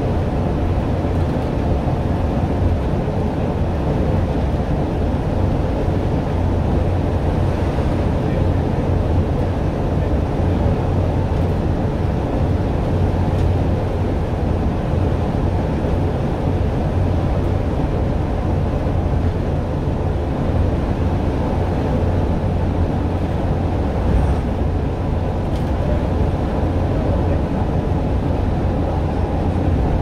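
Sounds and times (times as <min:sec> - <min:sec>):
bus engine and tyres droning: 0:00.0 - 0:30.0
bus passing: 0:00.0 - 0:30.0.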